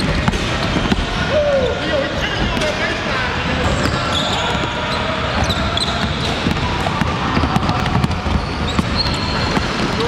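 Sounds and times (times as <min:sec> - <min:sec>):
basketballs bouncing on wood floor: 0:00.0 - 0:01.3, 0:03.6 - 0:10.0
sneaker squeaks: 0:00.0 - 0:02.9, 0:03.6 - 0:10.0.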